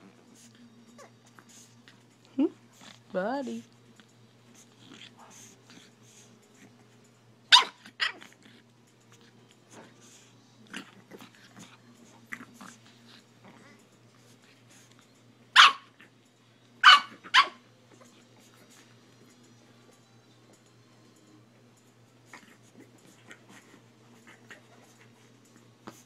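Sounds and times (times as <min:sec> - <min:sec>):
puppy barking: 0:07.5 - 0:08.3, 0:15.6 - 0:16.0, 0:16.8 - 0:17.6.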